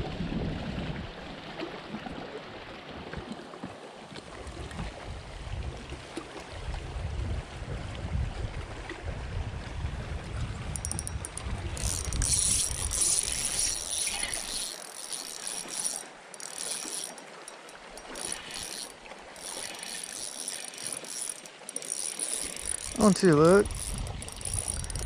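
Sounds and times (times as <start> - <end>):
fishing reel gears whirring: 10.7 - 25.0.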